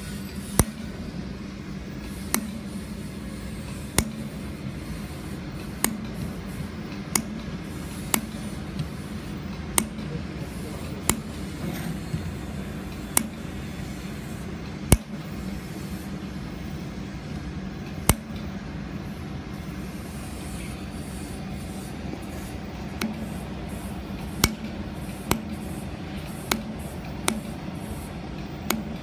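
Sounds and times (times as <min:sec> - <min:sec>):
welding machine hum and hiss: 0:00.0 - 0:29.0
sharp clicks: 0:06.9 - 0:07.4.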